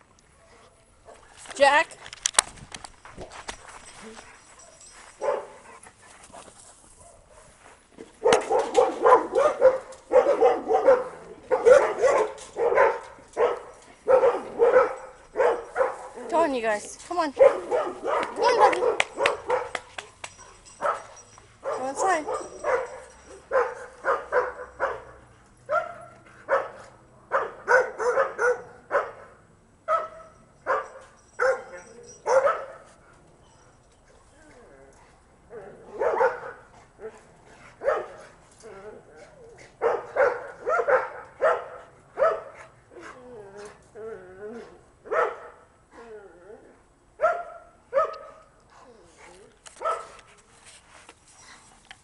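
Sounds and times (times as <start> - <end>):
dog barking: 4.6 - 5.6, 8.2 - 16.2, 17.4 - 32.9, 35.6 - 36.7, 37.8 - 38.2, 39.8 - 42.7, 45.1 - 45.6, 47.2 - 48.4, 49.8 - 50.2.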